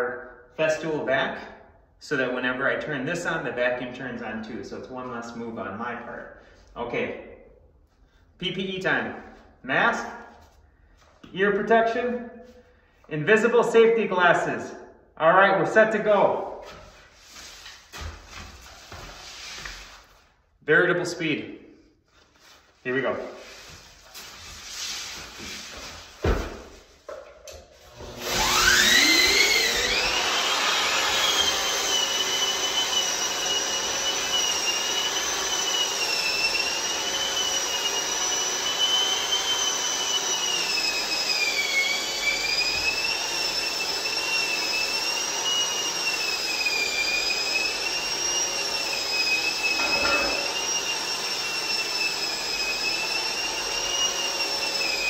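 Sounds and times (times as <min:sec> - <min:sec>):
dust extractor running: 0:27.8 - 0:55.0
electric sander whining: 0:27.8 - 0:55.0.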